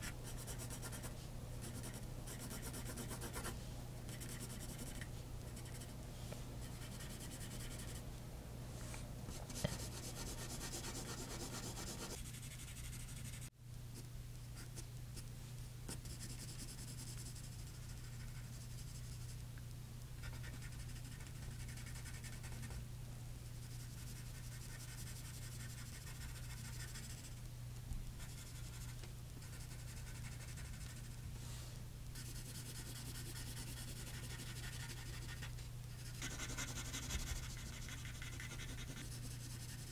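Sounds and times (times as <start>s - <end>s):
pencil scratching on paper: 0.0s - 5.0s, 6.6s - 8.0s, 9.5s - 13.5s, 23.7s - 27.2s, 28.2s - 31.1s, 32.2s - 39.9s.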